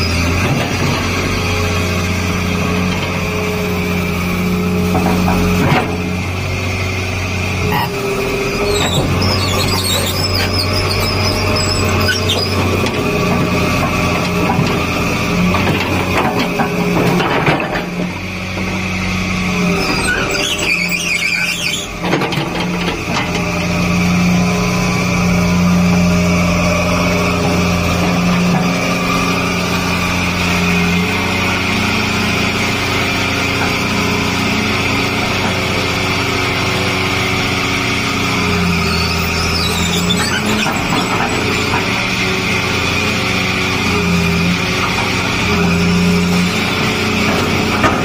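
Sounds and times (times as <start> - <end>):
excavator diesel engine running: 0.0 - 48.0
hydraulic whine: 0.0 - 48.0
high squeals: 7.7 - 12.7, 19.7 - 22.0, 38.2 - 41.7.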